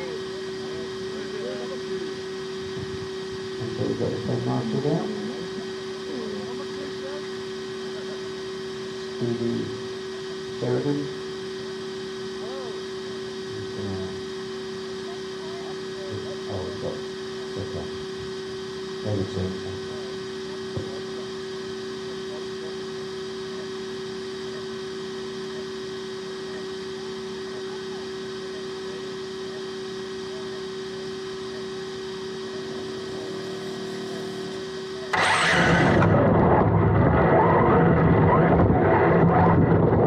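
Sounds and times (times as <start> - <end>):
faint electric whine: 0.0 - 40.0
steady electrical hum: 0.0 - 40.0
faint voices: 26.4 - 36.2
rc buggy launching rush: 35.1 - 39.2.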